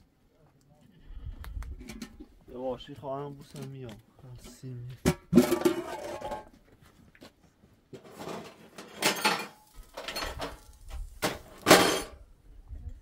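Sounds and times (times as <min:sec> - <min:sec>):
pots and dishes clattering: 0:05.1 - 0:06.5, 0:08.0 - 0:10.6, 0:11.2 - 0:12.2.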